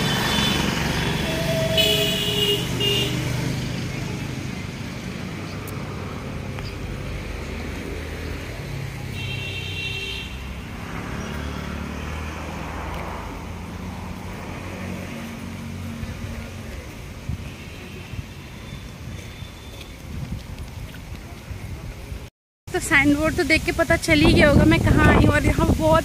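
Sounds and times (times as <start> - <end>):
road noise: 0.0 - 26.0.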